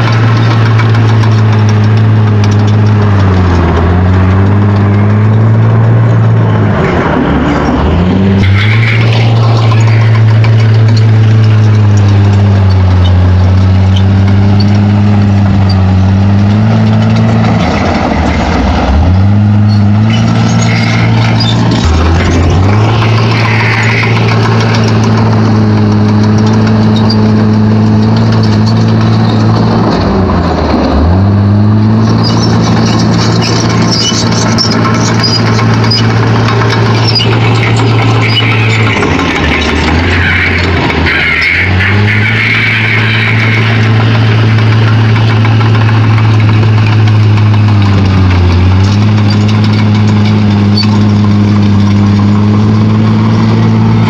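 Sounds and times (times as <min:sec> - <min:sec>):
bulldozer diesel engine running: 0:00.0 - 0:54.0.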